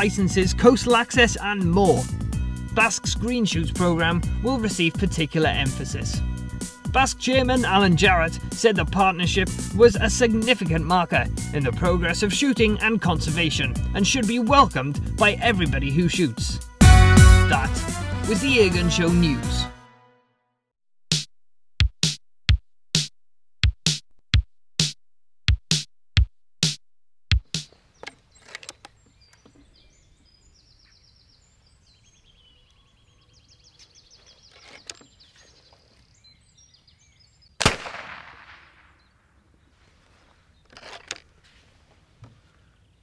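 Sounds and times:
electronic percussion jingle: 16.8 - 19.2
faint birdsong: 27.7 - 37.6, 38.8 - 43.0.

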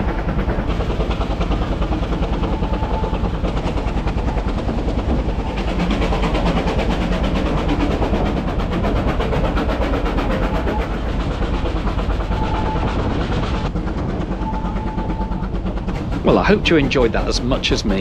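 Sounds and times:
steam train running: 0.0 - 18.0.

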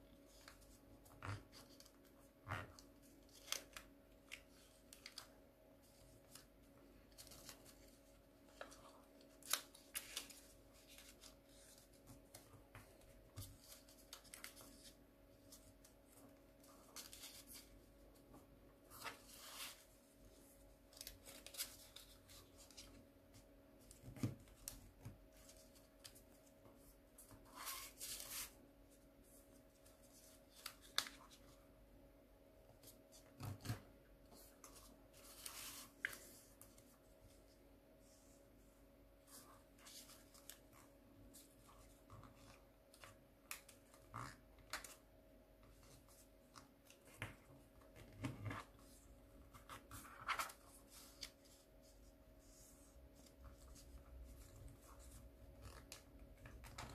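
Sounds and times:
paper rustling and crinkling: 0.2 - 31.7, 45.6 - 56.9.

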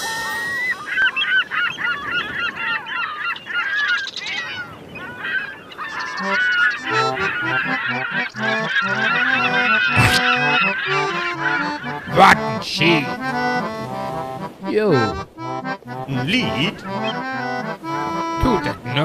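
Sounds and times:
squawking cartoon bird calls: 0.0 - 13.3.

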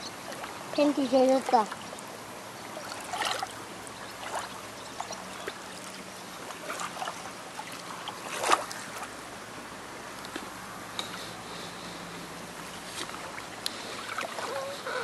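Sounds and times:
low wash of water: 0.0 - 15.0
hands splashing in water: 7.8 - 9.1.

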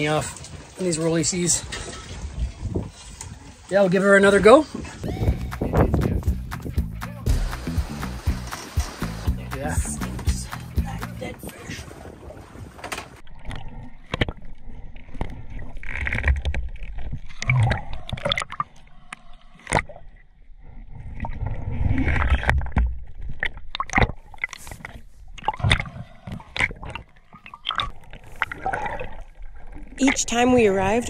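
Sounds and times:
underwater gurgling and rushing: 7.3 - 9.5, 11.7 - 31.0.

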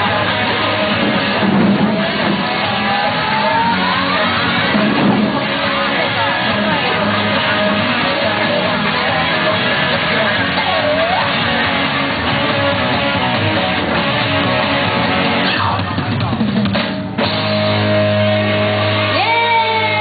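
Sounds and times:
children shouting: 0.0 - 12.0, 19.1 - 20.0
rock backing music: 0.0 - 20.0
taiko drumming: 0.6 - 3.5.

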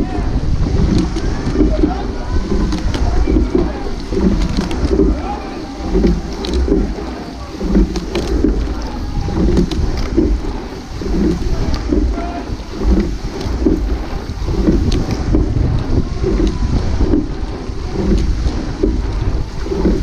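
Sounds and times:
wind buffeting microphone: 0.0 - 20.0
people shouting: 1.2 - 6.4, 8.7 - 9.8, 12.1 - 12.7.

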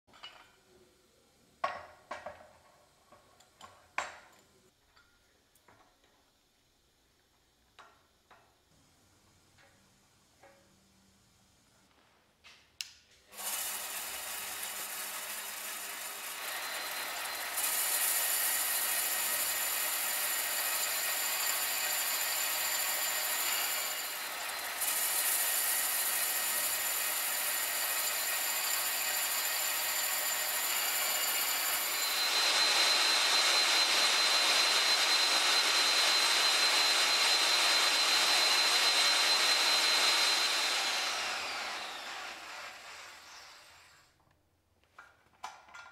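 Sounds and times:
electric grinding machine whining: 13.4 - 44.0.

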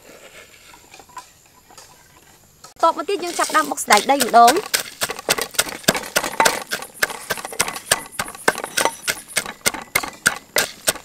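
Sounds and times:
pestle pounding in mortar: 3.9 - 11.0.

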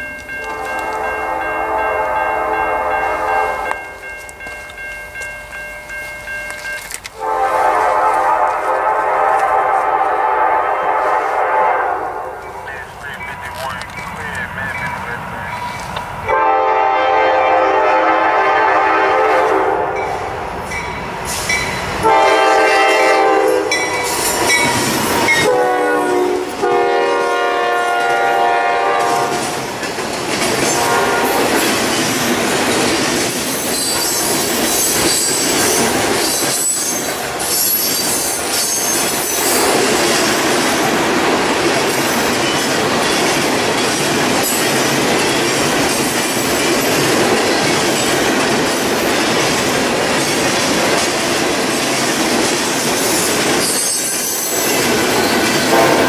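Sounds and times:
train rumbling past: 0.0 - 56.0
train air horn blasts: 0.4 - 3.7, 7.2 - 12.6, 15.5 - 20.1, 22.0 - 23.8, 25.3 - 29.5, 30.7 - 31.6, 55.7 - 56.0
wheels clattering on rails: 31.6 - 56.0.

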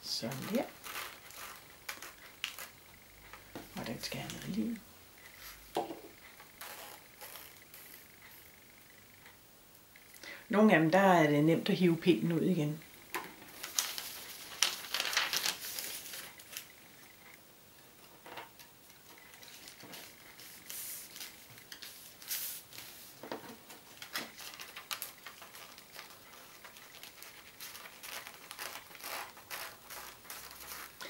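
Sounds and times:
paper rustling and crinkling: 13.5 - 16.7, 19.3 - 31.0.

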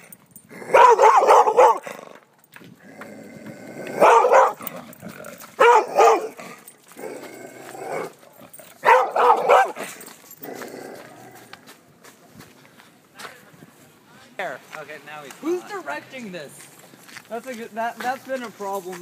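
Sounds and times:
large dog barking: 0.5 - 2.2, 3.7 - 11.1.

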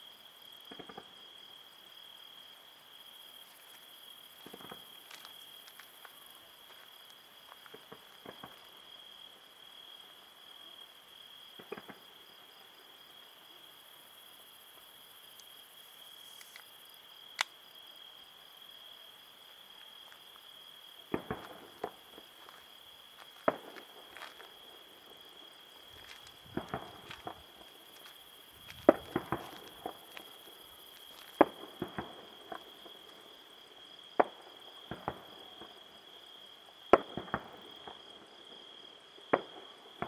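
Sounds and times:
crickets trilling: 0.0 - 40.0
distant fireworks bangs: 11.5 - 12.2, 21.0 - 33.1, 34.2 - 35.8, 36.9 - 38.1.

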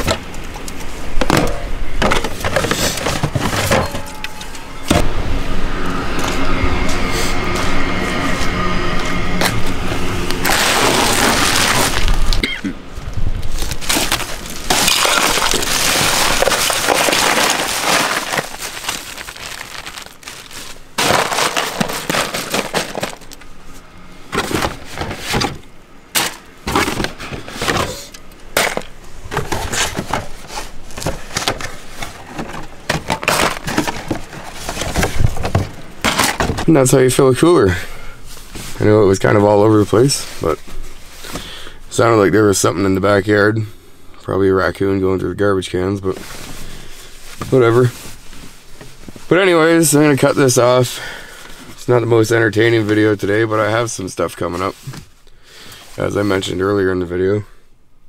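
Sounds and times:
ice cubes clattering into cooler: 1.2 - 4.6, 10.4 - 12.3, 13.6 - 23.4, 24.3 - 36.7.

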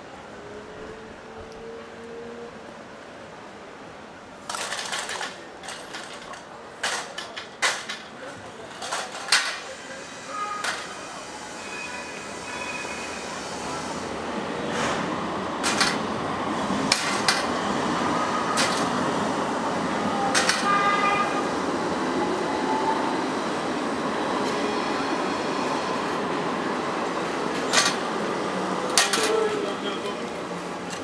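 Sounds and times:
tram rumbling on rails: 0.0 - 31.0
tram squealing: 8.5 - 30.3.

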